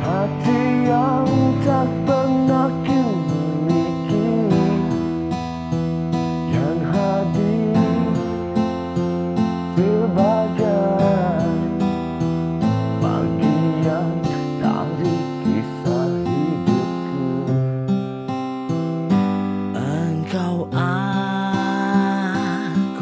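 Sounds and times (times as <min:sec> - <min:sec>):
pitch-bending melody line: 0:00.0 - 0:17.5
strummed acoustic guitar: 0:00.0 - 0:23.0.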